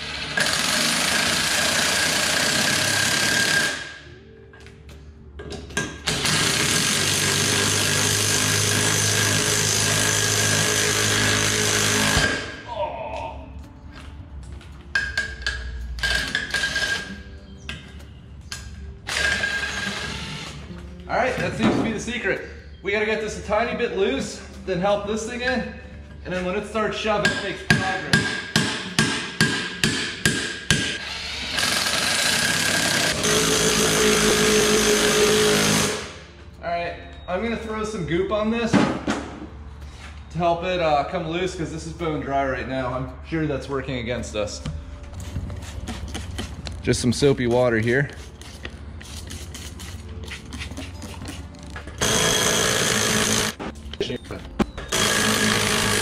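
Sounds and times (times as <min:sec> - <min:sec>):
impact wrench running: 0:00.0 - 0:04.0, 0:06.1 - 0:12.5, 0:30.3 - 0:36.2, 0:52.0 - 0:53.6, 0:54.9 - 0:56.0
impact wrench hammering: 0:10.5 - 0:12.6, 0:27.2 - 0:36.1, 0:52.0 - 0:53.6, 0:54.9 - 0:56.0.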